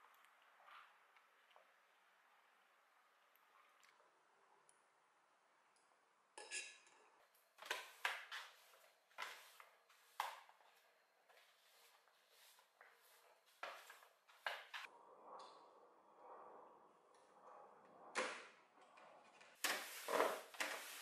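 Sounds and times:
broom sweeping wooden floor: 7.7 - 14.9, 19.6 - 21.0.

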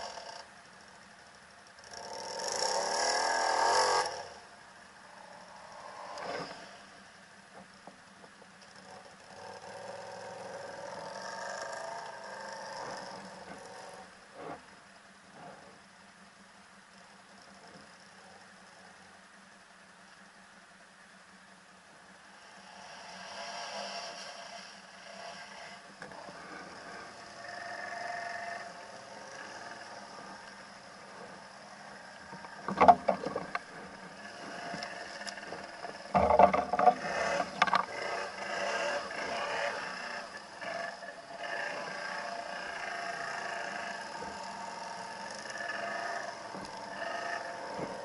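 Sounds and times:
atv engine running: 1.7 - 4.5, 8.6 - 14.5, 22.4 - 48.0
branches knocking and scraping: 34.7 - 37.9.

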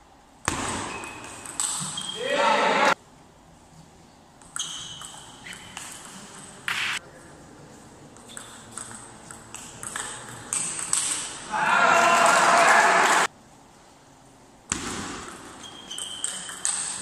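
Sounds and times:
ping pong ball clicking: 1.0 - 2.0, 4.4 - 6.9, 8.2 - 11.3, 15.3 - 17.0.

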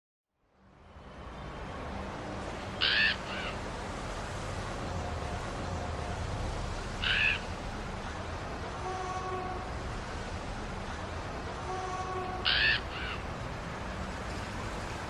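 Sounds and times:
crow calling: 2.8 - 3.7, 7.0 - 7.5, 12.4 - 13.3.

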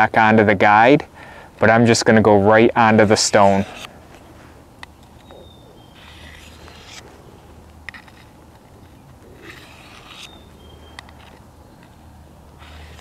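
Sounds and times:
knife blade scraping sharpener: 2.8 - 3.9, 5.0 - 7.1, 7.8 - 12.0, 12.6 - 13.0.

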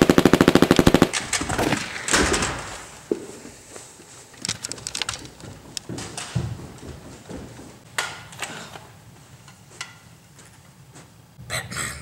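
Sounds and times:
machine gun sound effect: 0.0 - 1.2.

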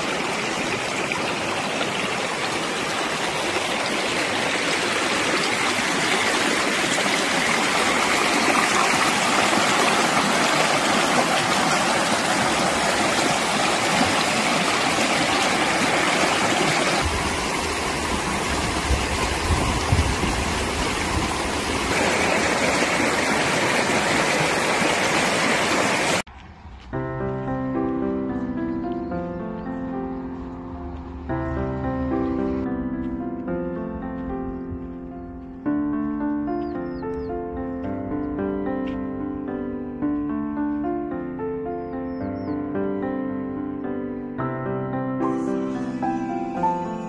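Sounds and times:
river water rushing over rocks: 0.0 - 26.2
low rumble: 26.3 - 27.9.

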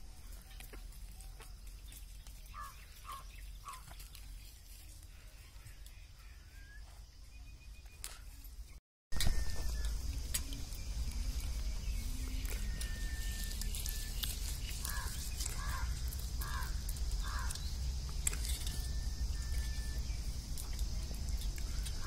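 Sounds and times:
high insect hum: 0.0 - 22.0
bird calls: 0.1 - 22.0
low rumble: 9.2 - 22.0.

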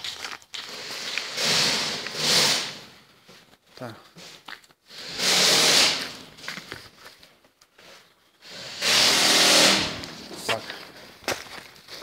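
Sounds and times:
loud rushing hiss: 4.9 - 6.2.

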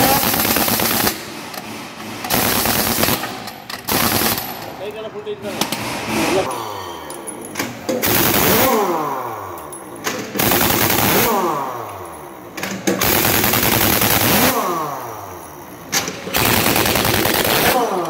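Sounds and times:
pneumatic impact wrench rattling: 0.0 - 4.8, 5.5 - 6.5, 7.1 - 18.0.

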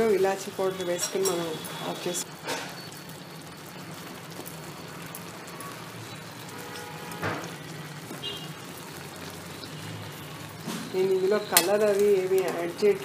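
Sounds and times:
milk mixture simmering and sizzling: 0.0 - 13.0
spatula stirring and scraping: 10.8 - 12.7.

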